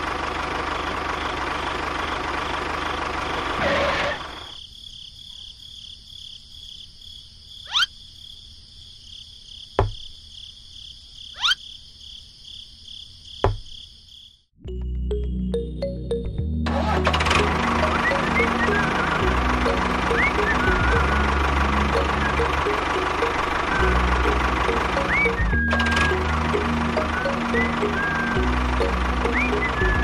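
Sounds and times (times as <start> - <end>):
tractor engine running: 0.0 - 4.5, 14.8 - 30.0
thud: 9.8 - 10.1.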